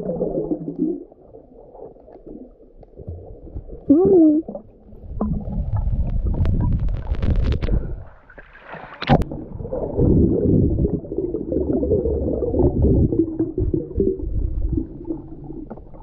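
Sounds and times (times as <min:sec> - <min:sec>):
low underwater rumbling: 0:00.0 - 0:16.0
underwater clicks: 0:05.1 - 0:09.4.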